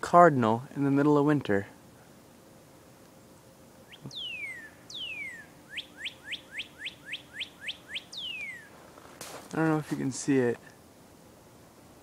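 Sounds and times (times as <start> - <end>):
bird whistling song: 3.8 - 8.8.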